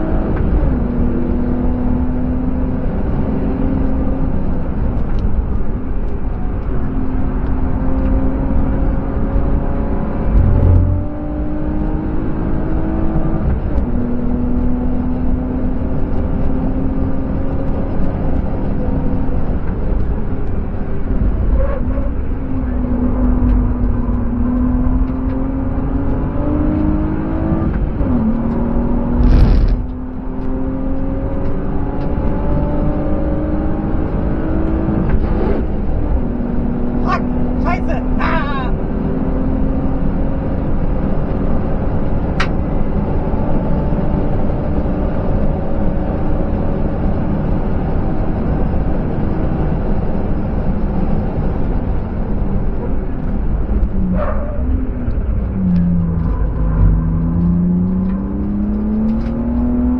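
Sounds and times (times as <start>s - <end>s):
car engine under load: 0.0s - 38.2s, 38.8s - 59.9s
road noise: 0.0s - 59.9s
loud rushing bursts: 29.2s - 29.9s.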